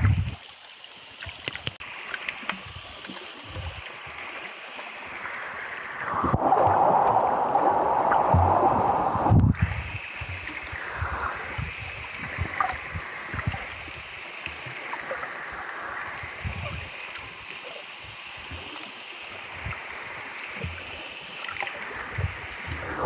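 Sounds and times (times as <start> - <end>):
underwater water hiss: 1.8 - 23.0
low underwater thumps: 8.3 - 10.5.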